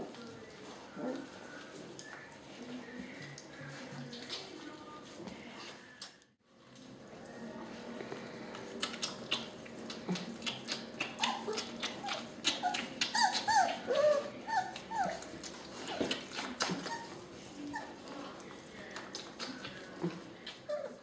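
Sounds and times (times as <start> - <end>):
puppies whimpering and squealing: 0.0 - 4.6, 8.8 - 18.7, 19.4 - 21.0
puppies suckling clicks and smacks: 0.0 - 21.0.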